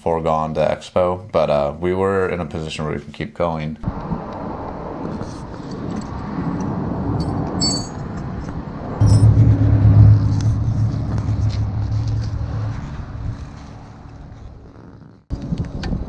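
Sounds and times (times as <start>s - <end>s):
vehicle engine humming: 3.9s - 16.0s.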